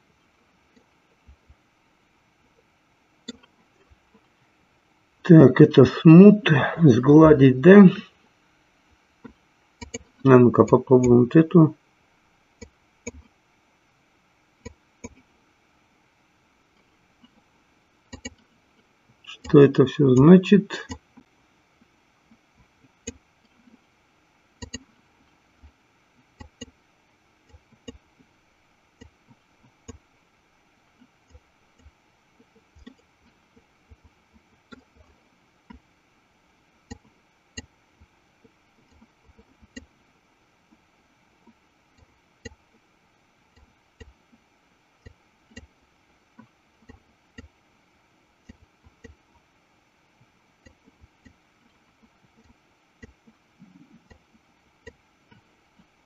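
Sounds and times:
low background hiss: 0:00.0 - 0:56.0
mouse and keyboard clicks: 0:09.8 - 0:10.8, 0:18.1 - 0:18.4, 0:24.6 - 0:24.9.

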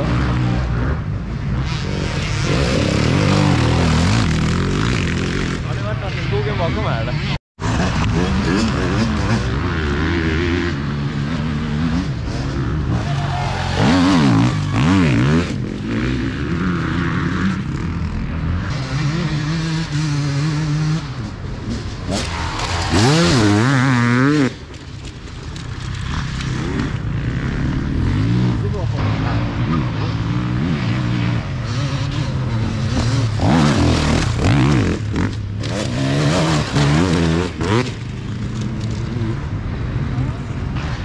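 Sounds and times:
dirt bike engine revving: 0:00.0 - 0:41.0.

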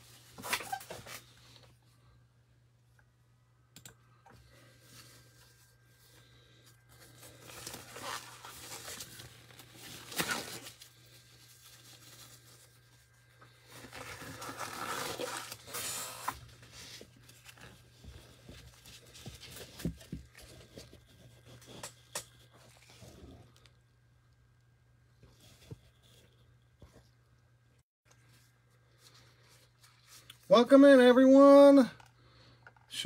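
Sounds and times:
steady low hum: 0:01.2 - 0:30.5
rustling and crinkling: 0:04.4 - 0:23.8, 0:28.1 - 0:30.5.

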